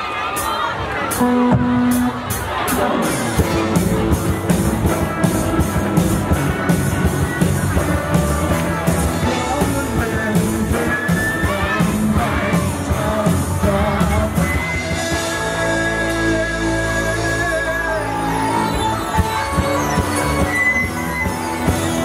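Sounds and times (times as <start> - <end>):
drum kit: 0.2 - 22.0
live rock band playing: 0.2 - 22.0
person singing: 7.3 - 20.9.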